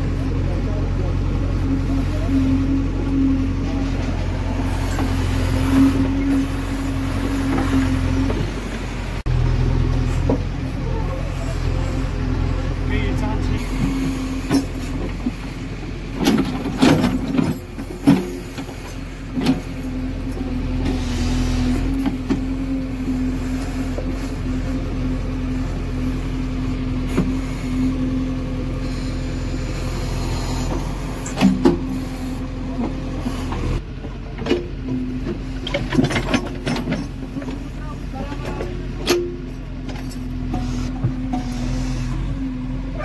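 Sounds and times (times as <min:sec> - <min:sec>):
diesel engine running: 0:00.0 - 0:43.0
bucket clanking on soil and stones: 0:35.6 - 0:37.7.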